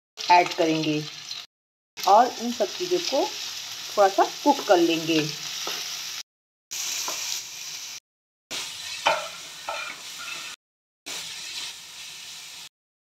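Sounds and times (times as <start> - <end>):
vegetables sizzling in oil: 0.2 - 12.7
spatula scraping pan: 8.5 - 11.8.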